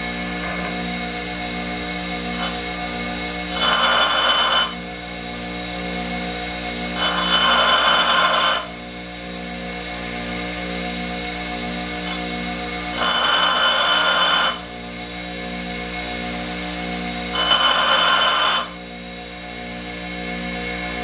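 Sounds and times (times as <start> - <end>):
bench grinder running: 0.0 - 21.0
drill bit grinding on wheel: 2.1 - 5.0, 6.8 - 8.8, 11.9 - 14.8, 17.3 - 18.9.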